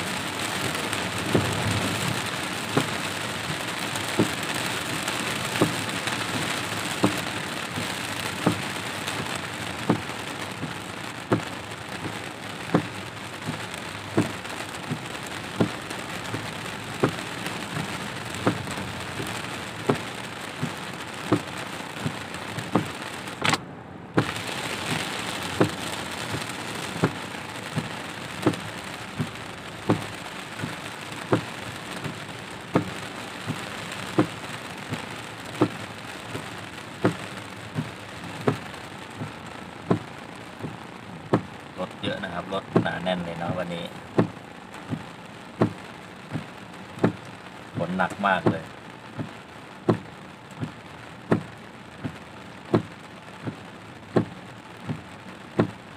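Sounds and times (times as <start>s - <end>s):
heavy rain on a car: 0.0s - 55.9s
windshield wipers knocking: 0.2s - 55.9s.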